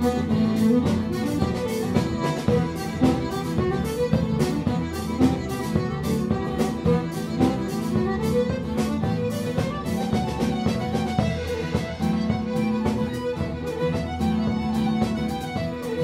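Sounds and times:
accordion: 0:00.0 - 0:16.0
drums keeping a steady beat: 0:00.0 - 0:16.0
fiddle: 0:00.0 - 0:16.0.

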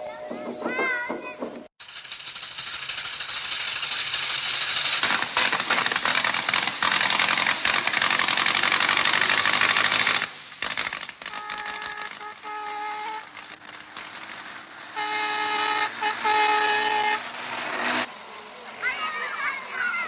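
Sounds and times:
dense rattling hiss with clicks: 0:01.5 - 0:14.9.

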